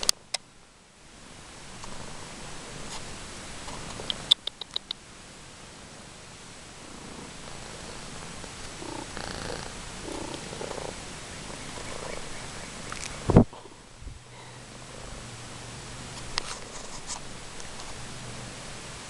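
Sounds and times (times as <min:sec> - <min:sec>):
sharp clicks: 0:03.9 - 0:05.0
cat purring: 0:06.7 - 0:12.5.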